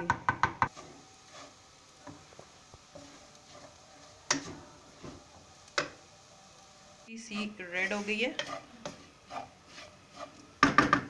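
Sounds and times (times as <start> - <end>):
wooden spoon knocking metal pan: 4.3 - 5.2, 10.6 - 11.0.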